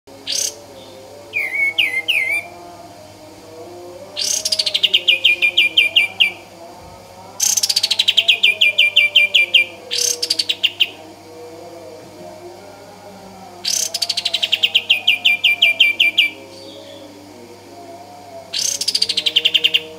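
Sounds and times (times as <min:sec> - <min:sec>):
bird singing trills: 0:00.2 - 0:02.6, 0:04.1 - 0:06.4, 0:07.4 - 0:11.0, 0:13.6 - 0:17.2, 0:18.5 - 0:19.9.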